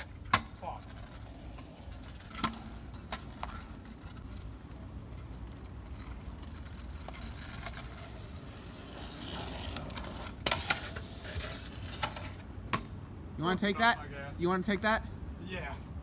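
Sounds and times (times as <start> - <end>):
scooter rolling over asphalt: 0.0 - 12.5.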